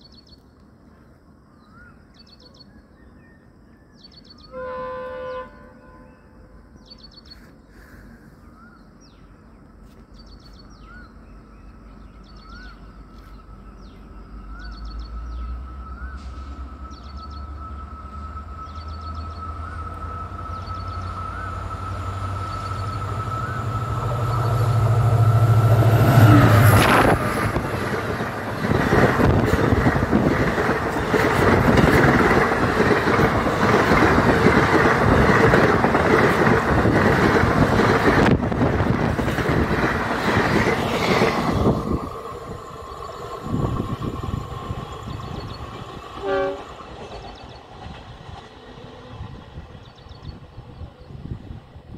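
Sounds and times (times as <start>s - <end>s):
locomotive drone: 4.5s - 51.9s
train coaches rushing over rails: 11.4s - 51.9s.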